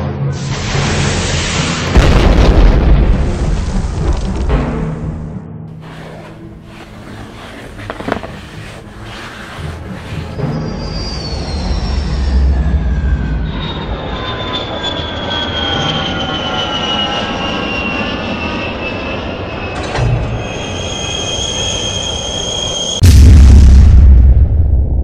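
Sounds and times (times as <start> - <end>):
airplane rushing noise: 0.0 - 22.9
high whines falling in pitch: 10.4 - 23.0.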